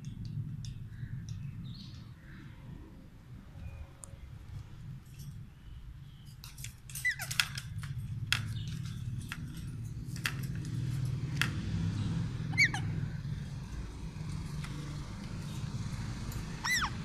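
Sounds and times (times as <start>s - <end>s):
clicks and knocks on wire cage: 6.2s - 11.8s
parakeets calling: 12.0s - 13.4s, 15.4s - 17.0s.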